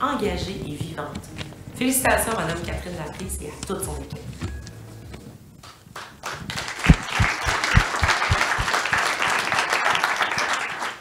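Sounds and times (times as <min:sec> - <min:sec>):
audience applauding: 0:05.9 - 0:11.0.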